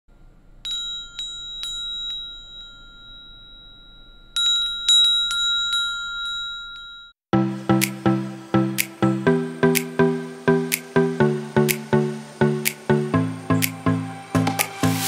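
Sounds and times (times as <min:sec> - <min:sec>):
small metal bells jingling: 0:00.7 - 0:07.2.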